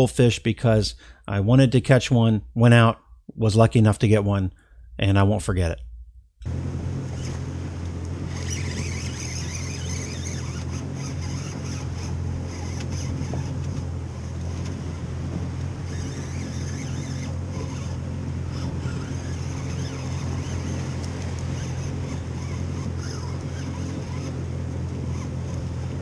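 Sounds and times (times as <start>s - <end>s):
outboard motor idling: 6.4s - 26.0s
water noise: 6.4s - 26.0s
wind: 6.4s - 26.0s.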